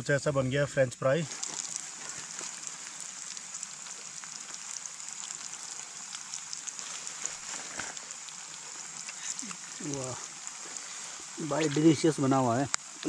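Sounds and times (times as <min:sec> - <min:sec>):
fries sizzling in hot oil: 0:01.0 - 0:13.0.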